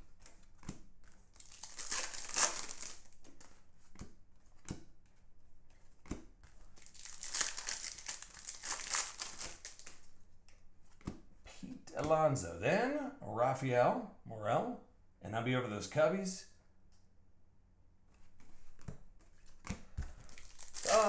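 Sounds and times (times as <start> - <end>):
foil wrapper crinkling: 1.3 - 3.2, 6.8 - 10.0, 20.1 - 21.0.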